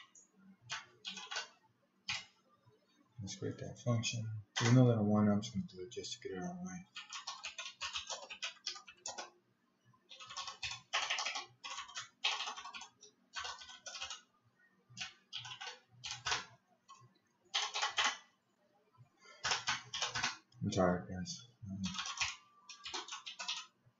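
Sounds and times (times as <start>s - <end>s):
computer keyboard typing: 0.0s - 2.4s, 4.5s - 4.8s, 6.8s - 9.3s, 10.1s - 14.3s, 15.0s - 18.3s, 19.3s - 20.5s, 21.8s - 23.7s.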